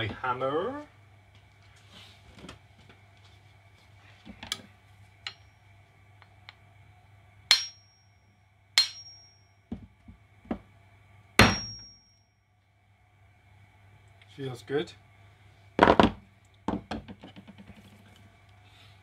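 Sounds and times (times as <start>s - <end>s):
hammer tapping metal cap: 8.8s - 9.2s.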